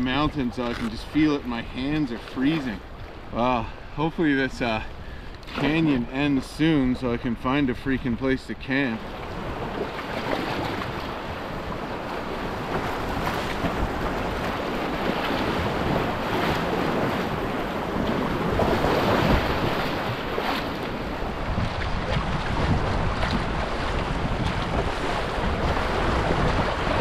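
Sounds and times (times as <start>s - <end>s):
wind buffeting microphone: 9.0s - 27.0s.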